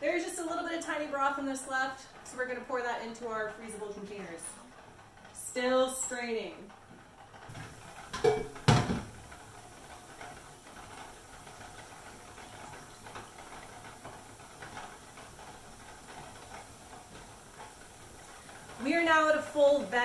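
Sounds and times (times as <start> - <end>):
steam hissing from vent pipe: 7.5 - 20.0.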